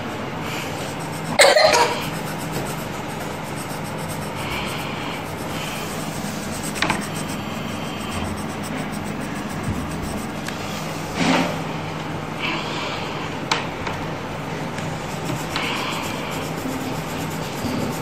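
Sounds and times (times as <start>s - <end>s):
steady low hum: 0.5s - 11.2s, 14.4s - 18.0s.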